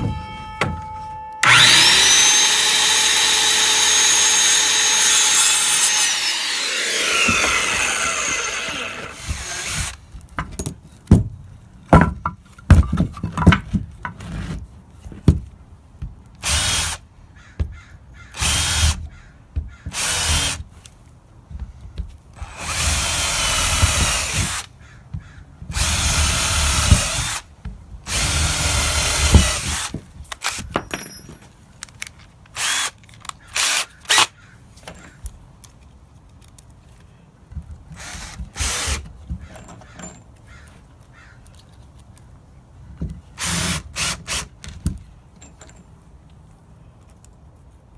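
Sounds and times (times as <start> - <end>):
circular saw spinning down: 1.4 - 9.2
cordless drill boring holes: 1.4 - 10.0, 18.4 - 19.0, 19.9 - 20.6, 22.4 - 24.7, 25.7 - 27.4, 28.1 - 30.6, 32.6 - 32.9, 33.5 - 34.3
handling clicks and knocks: 30.3 - 33.4.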